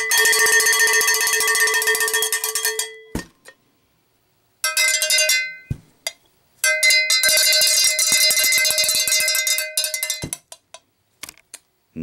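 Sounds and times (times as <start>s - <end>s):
cowbell rung rapidly: 0.0s - 3.0s.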